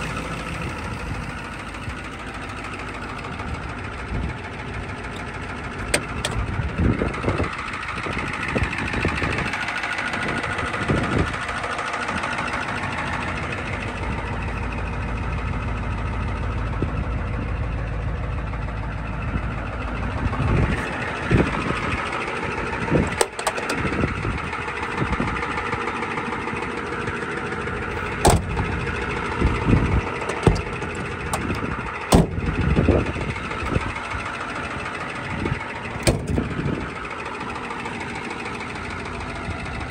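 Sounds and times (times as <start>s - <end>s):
diesel engine idling: 0.0s - 39.9s
sharp engine knocks: 5.2s - 6.6s, 23.0s - 24.1s, 27.9s - 33.0s, 36.0s - 36.6s.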